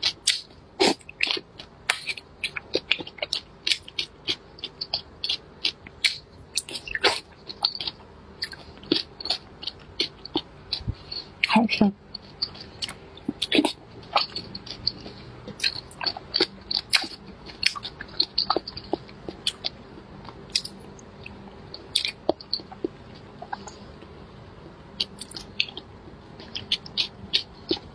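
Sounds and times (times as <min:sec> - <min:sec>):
close-miked wet chewing: 0:00.0 - 0:27.9.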